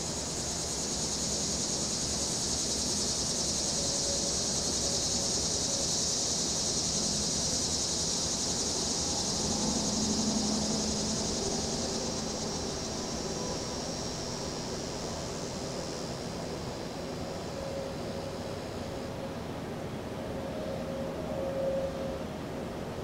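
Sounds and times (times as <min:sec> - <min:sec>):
cicadas buzzing: 0:00.0 - 0:23.0
wind: 0:00.0 - 0:23.0
distant traffic rumble: 0:05.6 - 0:20.0.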